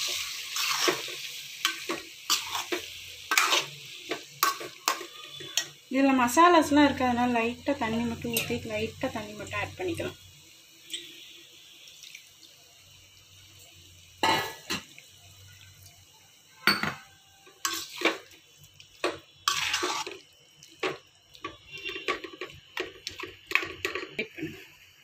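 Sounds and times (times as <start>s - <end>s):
metal spoon stirring in a pan: 0.0s - 5.8s, 17.5s - 18.4s, 19.0s - 24.3s
water pouring into a pan: 10.9s - 16.4s.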